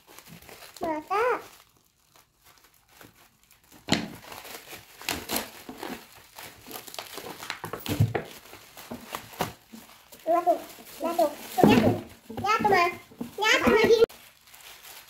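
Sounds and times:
plastic wrapping crinkling: 0.0s - 15.0s.

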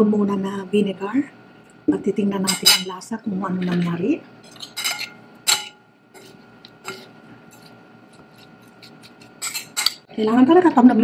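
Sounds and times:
metal spoons clinking on ceramic bowl: 2.5s - 2.9s, 4.5s - 5.8s, 9.4s - 10.0s.

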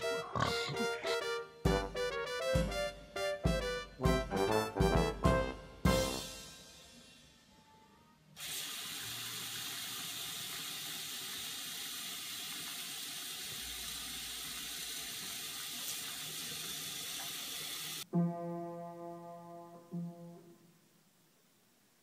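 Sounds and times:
faucet running into sink: 8.4s - 18.0s.

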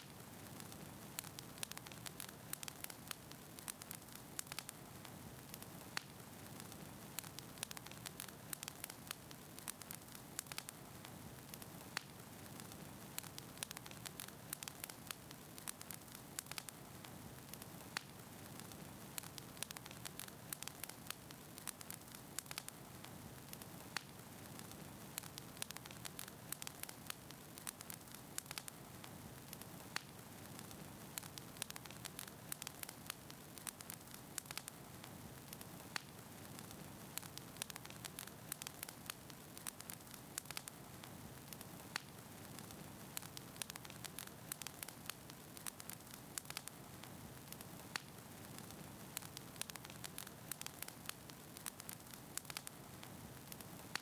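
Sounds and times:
crackling clicks: 0.0s - 54.0s
static hiss: 0.0s - 54.0s.

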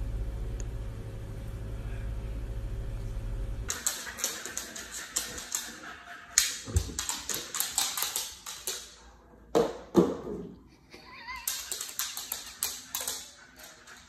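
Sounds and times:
dog claws clicking on wooden floor: 3.7s - 9.1s, 11.2s - 14.0s.

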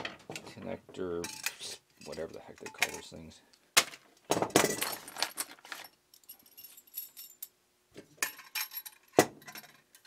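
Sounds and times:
metal connectors clinking: 4.5s - 7.6s
plastic bag crinkling: 4.8s - 6.0s.

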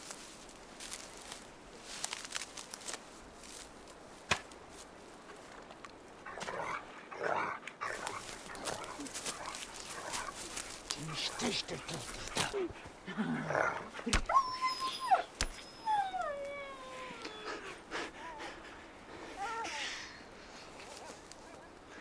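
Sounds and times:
dry reeds rustling and crackling: 0.0s - 17.4s, 20.2s - 22.0s
dog whining: 14.2s - 17.6s.

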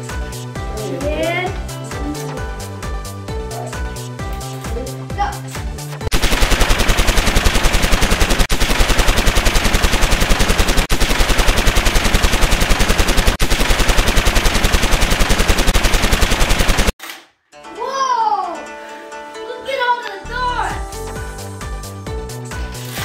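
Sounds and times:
machine-gun fire: 6.1s - 17.0s.

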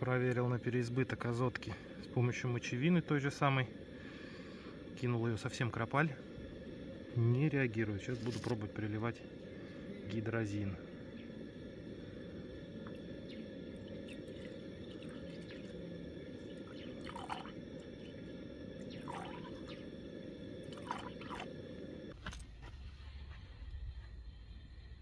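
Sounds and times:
steady low rumble: 0.0s - 25.0s.

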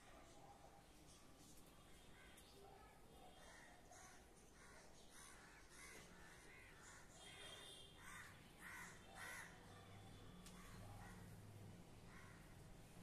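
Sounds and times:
faint crows cawing: 3.3s - 13.0s.

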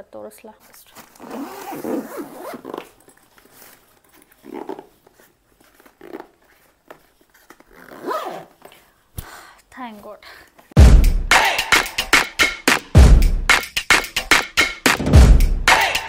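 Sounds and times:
suitcase zipper being pulled: 1.0s - 3.1s, 4.1s - 6.6s, 7.4s - 8.7s.

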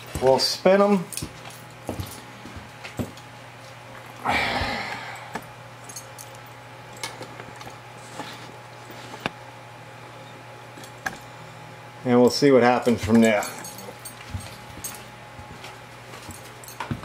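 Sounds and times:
steady low hum: 0.0s - 17.0s
rustling scrape: 8.0s - 9.3s.

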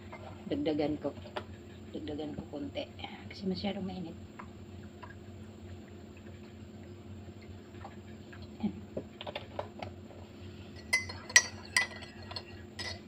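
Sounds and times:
spoon clinking on bowl: 10.8s - 13.0s
tableware clicks and taps: 10.8s - 13.0s.

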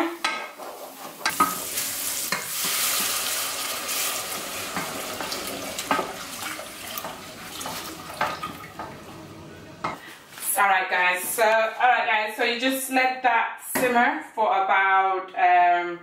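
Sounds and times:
shallots sizzling in butter: 0.6s - 10.0s
liquid pouring into pan: 1.3s - 9.4s.

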